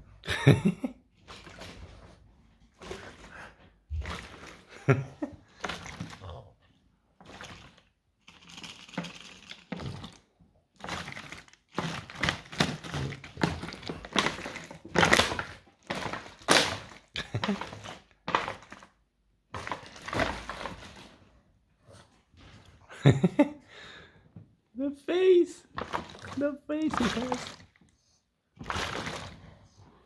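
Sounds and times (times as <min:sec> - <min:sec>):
plastic bottle crunching: 0:01.2 - 0:02.0, 0:02.8 - 0:06.2, 0:07.2 - 0:21.3, 0:25.6 - 0:27.8, 0:28.6 - 0:29.6.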